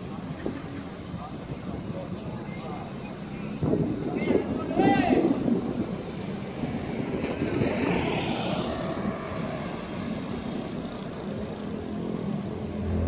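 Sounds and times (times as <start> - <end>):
traffic noise: 0.0 - 13.0
vehicle passing close: 7.6 - 13.0.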